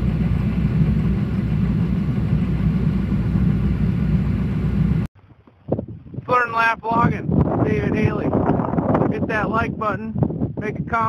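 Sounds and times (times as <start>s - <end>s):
low engine rumble: 0.0s - 6.1s.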